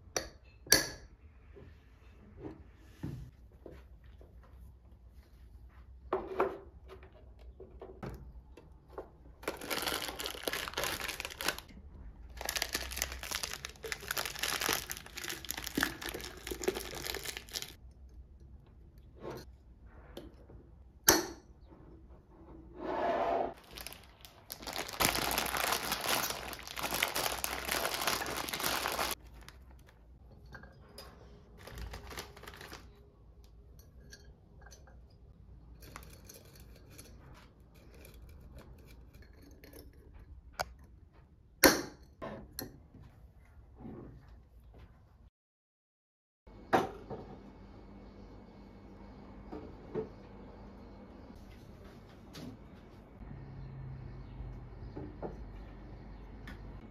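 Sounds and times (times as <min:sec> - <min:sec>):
packaging crinkling and tearing: 0:09.4 - 0:11.7, 0:12.3 - 0:17.8, 0:23.6 - 0:29.9, 0:31.6 - 0:33.0.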